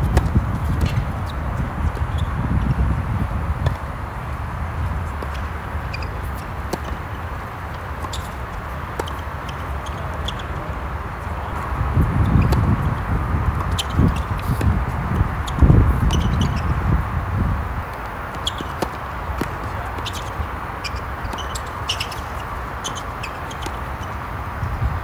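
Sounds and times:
tennis balls struck and bouncing: 5.1 - 16.6, 17.8 - 24.4.

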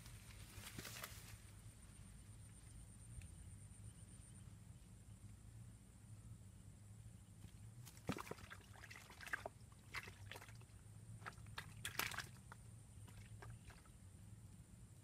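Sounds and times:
pond water splashing: 7.9 - 14.0.

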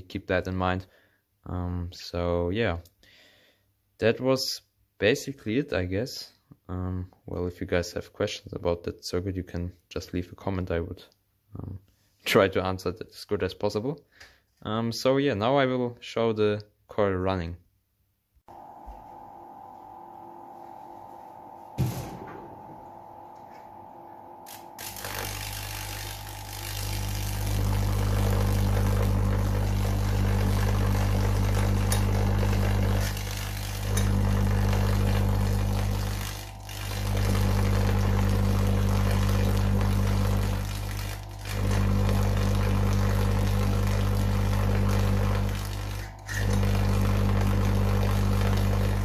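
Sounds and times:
tesla coil buzzing: 18.5 - 49.0.

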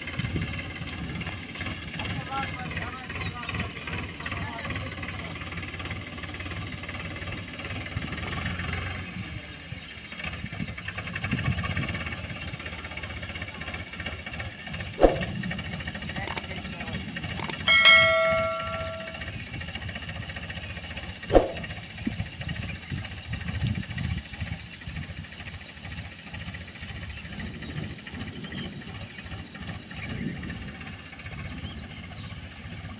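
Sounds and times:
tractor diesel engine rumbling: 0.0 - 32.9
sharp click: 15.0 - 15.3, 16.3 - 16.5, 17.4 - 19.2, 21.3 - 21.7
bell-like chime: 17.4 - 19.3.

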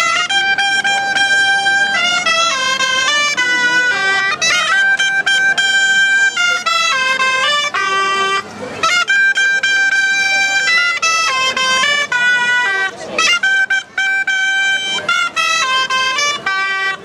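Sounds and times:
reedy wind band playing a tune: 0.0 - 17.0.

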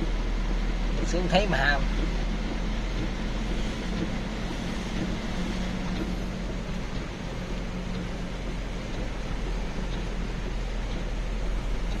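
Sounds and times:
tyres hissing on wet road: 0.0 - 11.9
low engine hum: 0.0 - 12.0.

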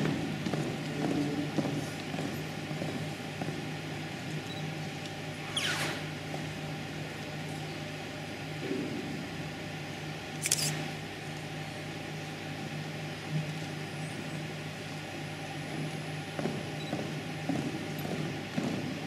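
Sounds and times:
footsteps on hall floor: 0.0 - 5.0, 5.8 - 7.3, 15.5 - 19.0
steady low hum: 0.0 - 19.0.

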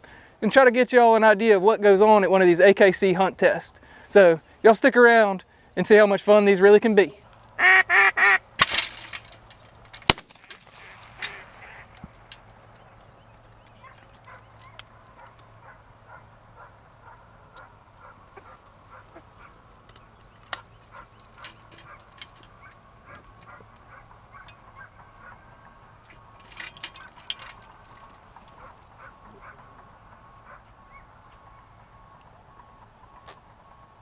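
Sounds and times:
ducks quacking: 7.6 - 8.4, 10.7 - 12.0, 15.6 - 19.6.

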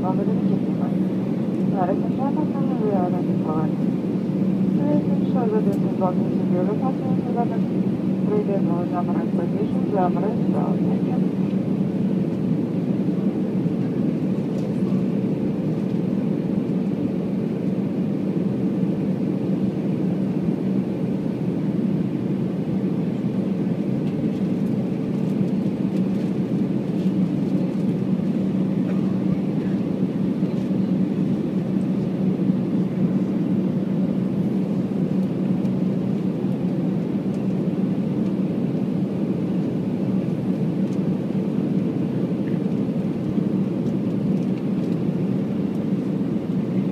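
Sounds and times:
low steady hum: 0.0 - 17.7
jet engine cabin drone: 0.0 - 46.9.

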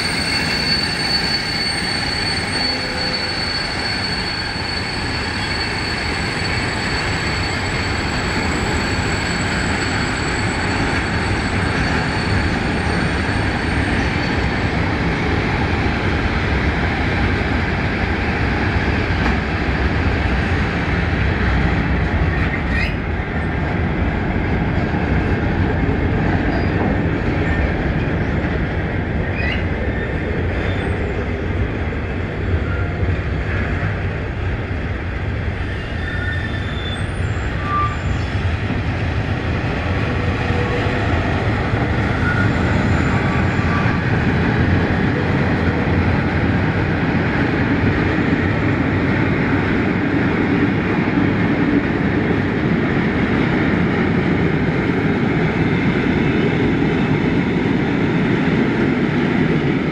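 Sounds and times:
faint wheel squeals: 0.0 - 13.8, 29.4 - 30.1, 35.7 - 38.4
train wheels rumbling on rail: 0.0 - 59.9.

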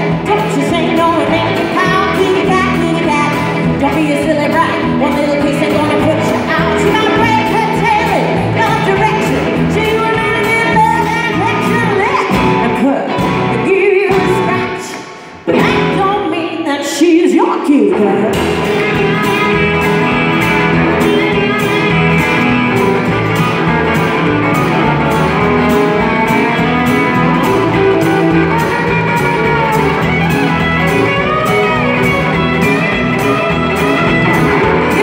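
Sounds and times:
woman singing: 0.0 - 18.4
live band playing: 0.0 - 35.0.

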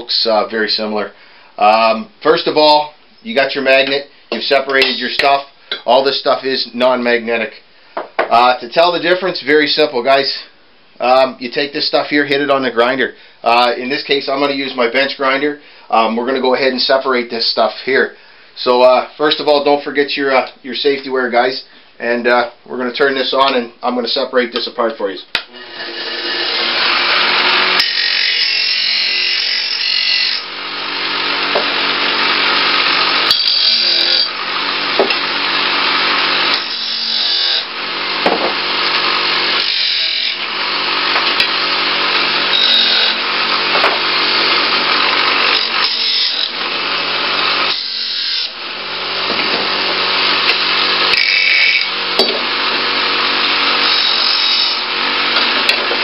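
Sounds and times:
bench grinder motor hum: 25.5 - 56.0
metal grinding hiss: 27.8 - 37.7.

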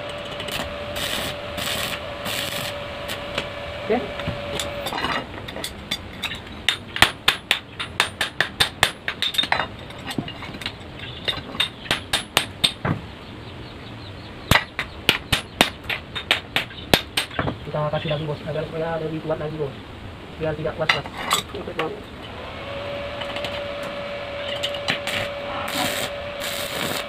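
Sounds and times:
arc welder crackling: 0.0 - 8.9, 23.1 - 27.0
hammer striking steel: 4.1 - 10.3, 11.3 - 12.9.

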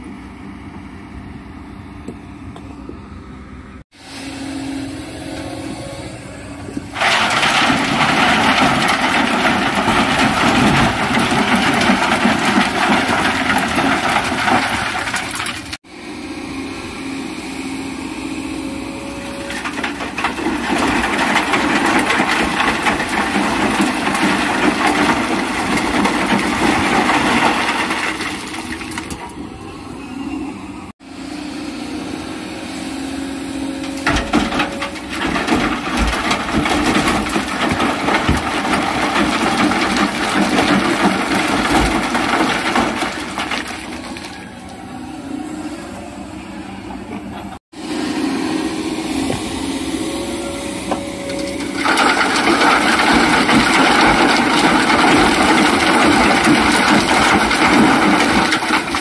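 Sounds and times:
excavator engine running: 0.0 - 59.0
sand and rocks pouring into steel bed: 7.0 - 15.7.

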